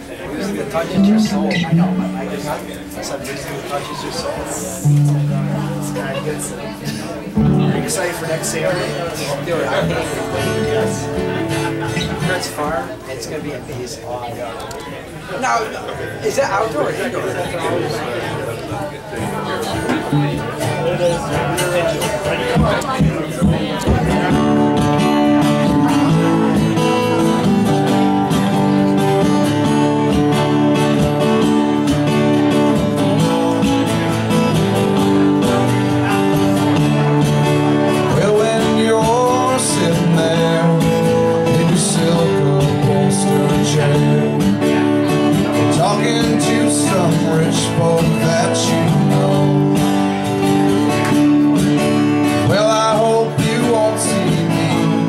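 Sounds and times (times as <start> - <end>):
acoustic guitars playing: 0.0 - 14.0, 14.9 - 55.0
person singing: 37.9 - 50.1, 52.4 - 55.0.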